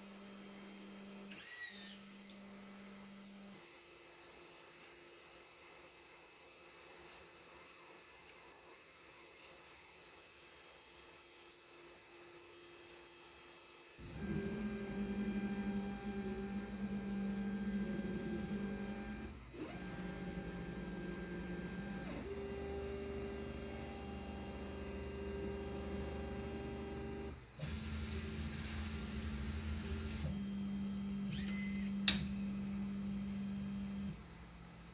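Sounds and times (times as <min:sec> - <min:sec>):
stepper motor whine: 0:14.0 - 0:34.3.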